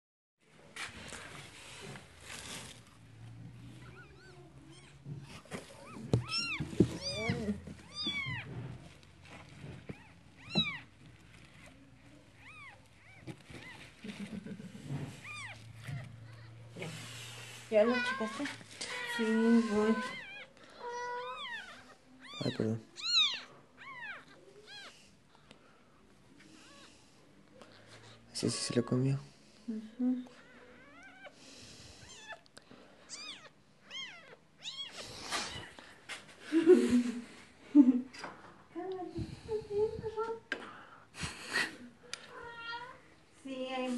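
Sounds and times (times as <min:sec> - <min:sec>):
rustling: 0:00.5 - 0:25.5
kitten mewing: 0:14.9 - 0:16.7.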